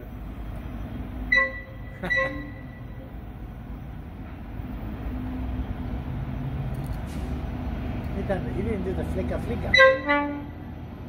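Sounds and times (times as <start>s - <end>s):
distant diesel locomotive rumbling: 0.0s - 11.0s
high train toot: 1.1s - 3.2s, 9.6s - 10.8s.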